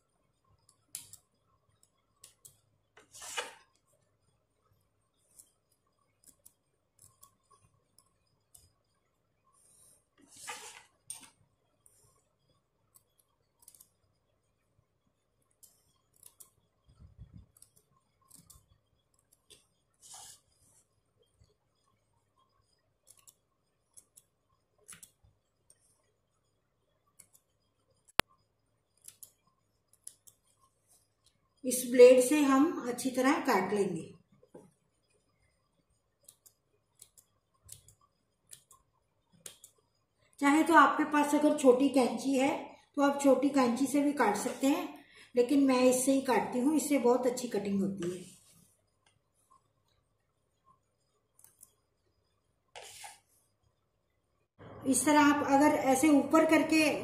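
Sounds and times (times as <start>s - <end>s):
fabric rustle: 9.7s - 11.0s.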